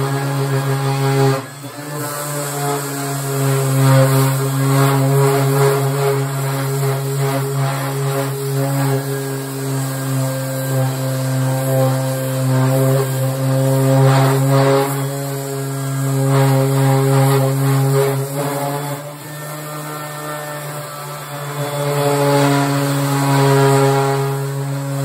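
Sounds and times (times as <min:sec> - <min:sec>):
orbital sander motor hum: 0:00.0 - 0:25.0
sander pad scratching paint: 0:00.0 - 0:25.0.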